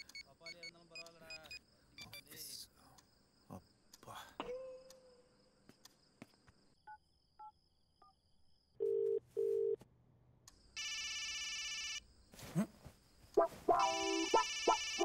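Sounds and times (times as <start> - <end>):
phone ring low tones: 13.8 - 15.0.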